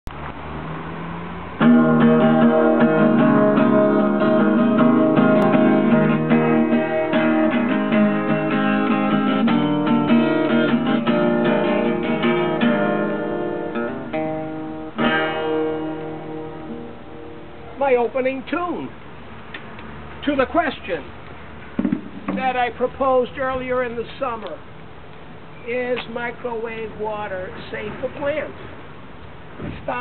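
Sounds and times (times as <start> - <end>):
acoustic guitar picking and strumming: 1.0 - 19.1, 21.6 - 24.2.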